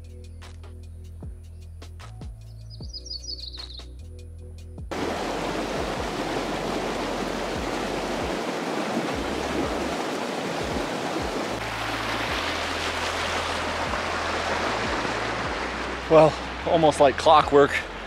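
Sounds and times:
creek water rushing: 4.9s - 18.0s.

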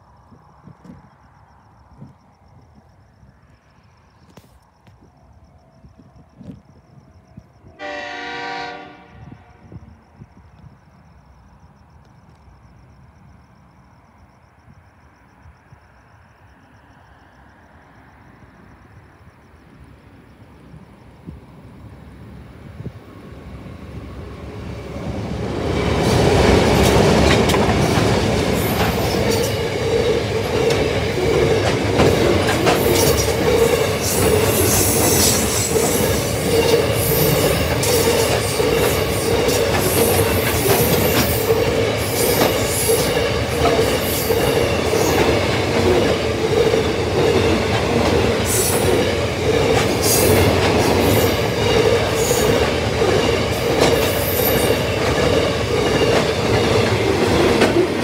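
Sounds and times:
diesel locomotive passing: 1.7s - 58.0s
wagons rolling on rails: 26.1s - 58.0s.

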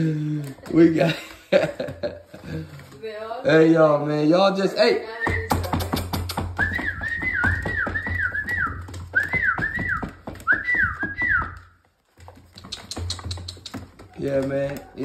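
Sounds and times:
claws clicking on plastic: 5.5s - 15.0s.

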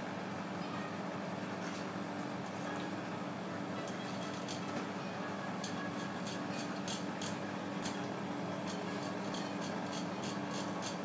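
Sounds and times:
knife scraping fish on board: 8.7s - 11.0s.

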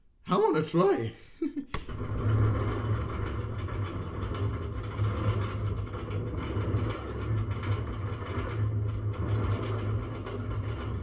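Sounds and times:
sharp click: 1.7s - 2.0s
faint clatter: 1.9s - 11.0s
roller coaster chain lift rumble: 1.9s - 11.0s.

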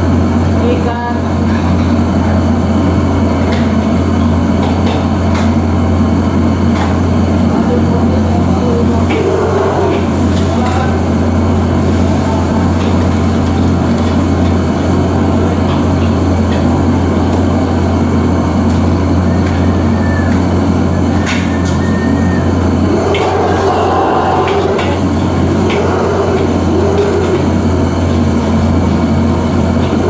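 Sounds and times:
exhaust hood humming: 0.0s - 30.0s
wok burner flame: 0.0s - 30.0s.

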